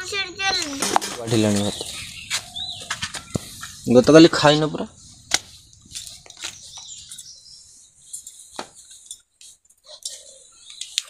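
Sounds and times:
faint high chirping: 0.0s - 11.0s
metal pots clinking: 0.7s - 1.8s.

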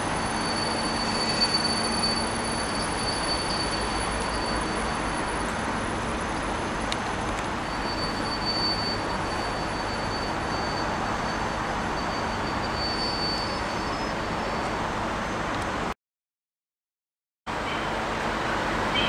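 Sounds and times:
thin high-pitched whine: 0.0s - 6.2s, 6.8s - 14.7s
diesel train rumble: 0.0s - 15.9s, 17.5s - 19.0s.

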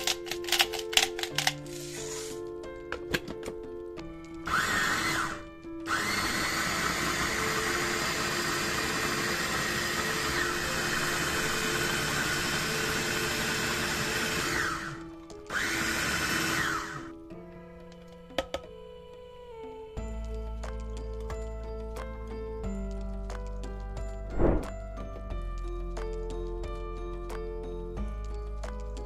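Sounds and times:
lid clicks: 0.0s - 1.6s, 3.0s - 3.6s
electric food chopper whirring: 4.4s - 17.1s.

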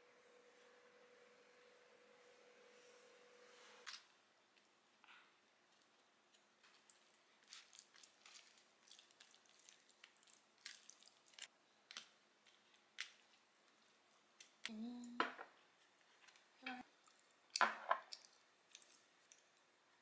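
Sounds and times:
soft squishing of meat: 5.7s - 14.7s, 15.9s - 19.8s
low voice humming: 14.7s - 15.2s.

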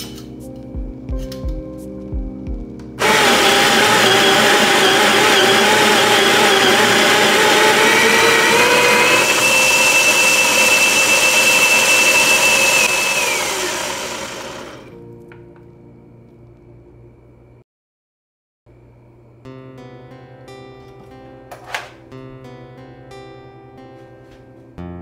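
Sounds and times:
coffee grinder grinding: 3.0s - 15.0s.

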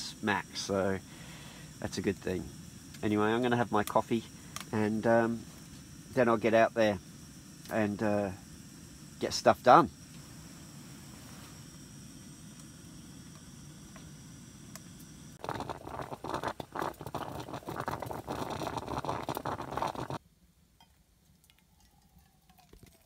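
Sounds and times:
coffee percolator bubbling: 0.0s - 20.2s, 21.2s - 23.0s
steady low hiss: 0.0s - 23.0s
coffee pouring into steel mug: 15.4s - 20.2s, 21.3s - 23.0s.

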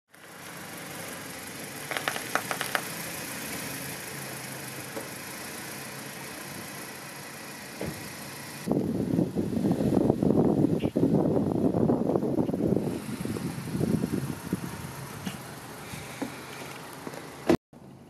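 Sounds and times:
car engine idling: 0.1s - 18.0s
sharp clicks: 1.9s - 2.9s.

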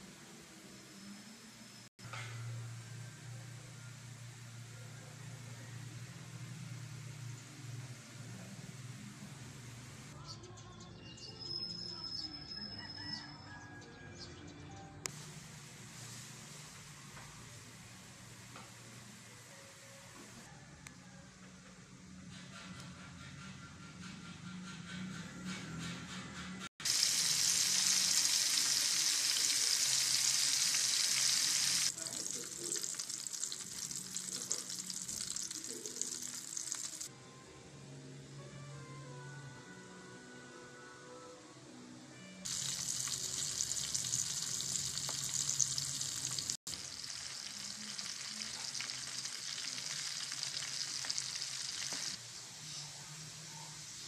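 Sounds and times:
fish deep-frying in hot oil: 26.8s - 37.1s, 42.5s - 52.2s.

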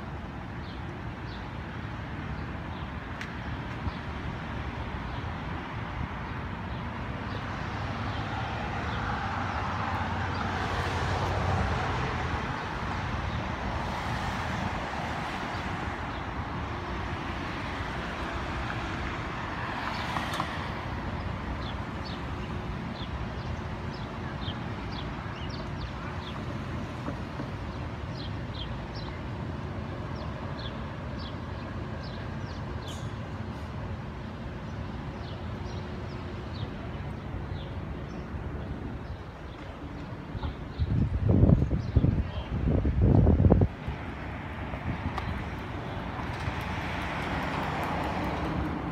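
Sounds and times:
steady street noise: 0.0s - 48.9s
birds chirping: 21.2s - 33.2s.

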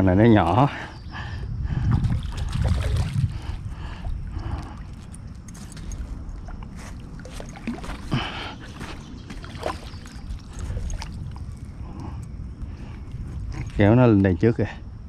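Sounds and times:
low rumbling noise: 0.0s - 15.0s
water splashing and gurgling: 1.7s - 12.3s.

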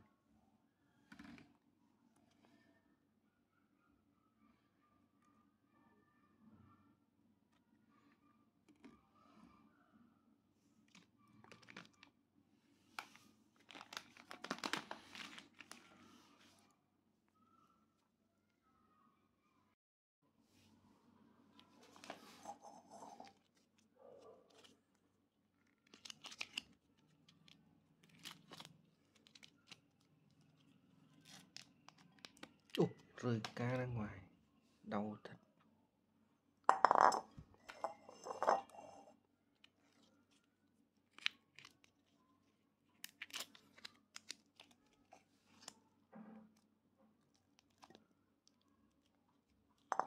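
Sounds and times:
plastic wrappers crinkling: 10.9s - 12.1s, 13.0s - 16.0s, 25.7s - 33.1s, 42.9s - 45.7s.

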